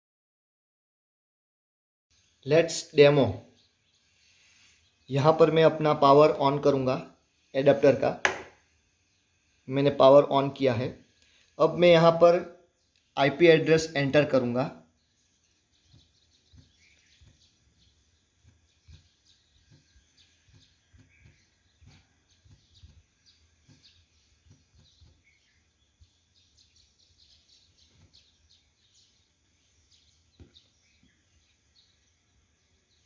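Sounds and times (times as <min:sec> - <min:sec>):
faint bird chirps: 0:02.2 - 0:07.7, 0:14.2 - 0:33.0
fingertips tapping touchscreen: 0:08.3 - 0:08.5.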